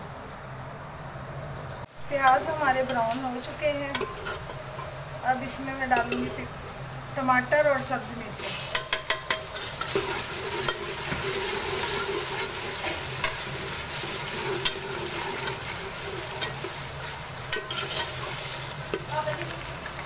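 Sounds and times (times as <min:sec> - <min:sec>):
vegetables sizzling in hot fat: 0:01.9 - 0:20.0
metal ladle clinking on pot: 0:08.7 - 0:11.0, 0:17.5 - 0:19.1.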